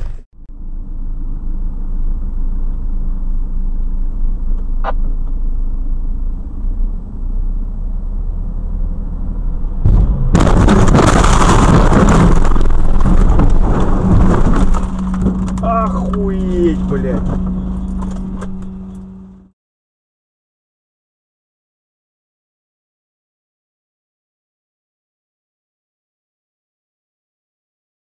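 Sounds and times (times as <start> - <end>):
car cabin and road rumble: 0.0 - 19.5
vehicle collision crash: 9.8 - 18.7.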